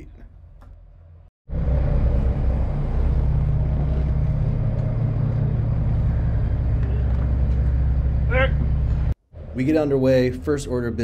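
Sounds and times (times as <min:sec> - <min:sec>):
boat engine idling: 0:01.5 - 0:09.1.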